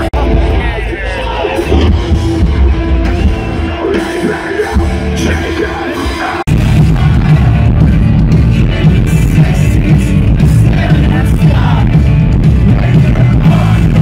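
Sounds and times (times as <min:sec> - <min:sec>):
live rock band over pa: 0:00.0 - 0:14.0
person singing: 0:03.8 - 0:14.0.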